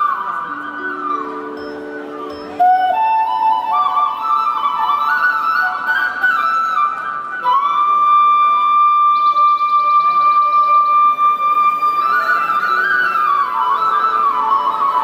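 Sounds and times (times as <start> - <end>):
flute melody: 0.0 - 15.0.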